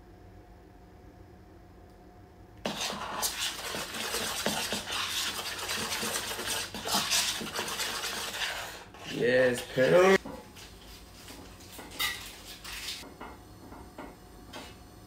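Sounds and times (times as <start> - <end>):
utensil stirring batter in bowl: 2.6 - 10.7.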